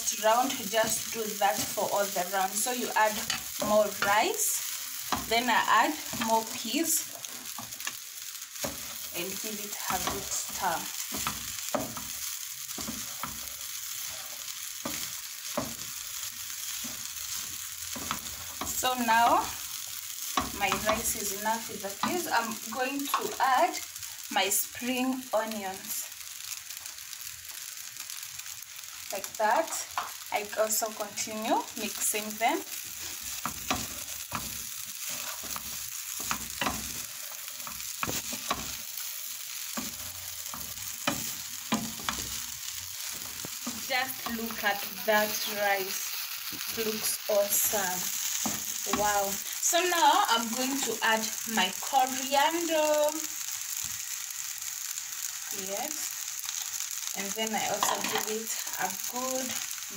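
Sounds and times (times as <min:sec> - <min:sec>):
rice sizzling in a pan: 0:00.0 - 0:59.9
spatula scraping and knocking pan: 0:08.6 - 0:23.4, 0:31.9 - 0:45.6.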